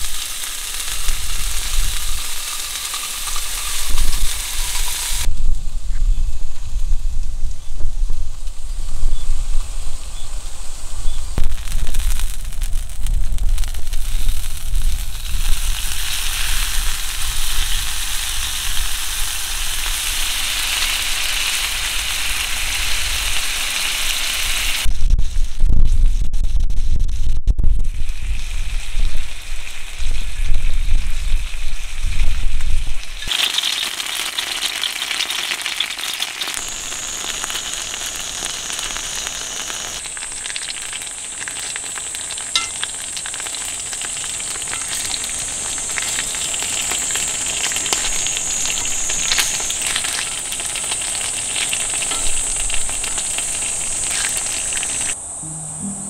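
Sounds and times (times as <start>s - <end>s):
food sizzling on griddle: 0.0s - 5.3s, 11.4s - 24.9s, 27.8s - 55.2s
wind rumble on microphone: 3.8s - 19.9s, 24.8s - 33.2s.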